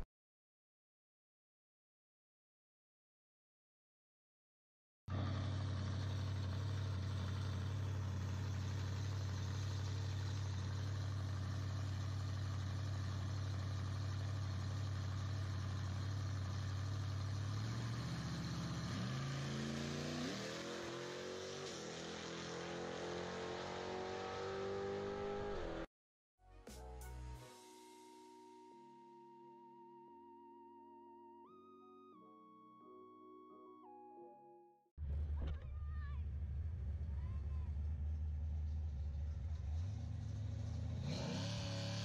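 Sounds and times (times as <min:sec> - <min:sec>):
pickup truck engine revving: 0:05.1 - 0:25.8, 0:37.7 - 0:42.0.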